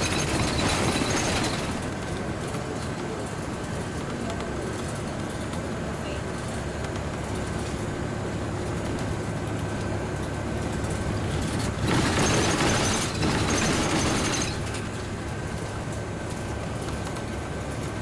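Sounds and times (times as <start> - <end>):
passing traffic rush: 0.0 - 18.0
road and tyre noise: 0.0 - 18.0.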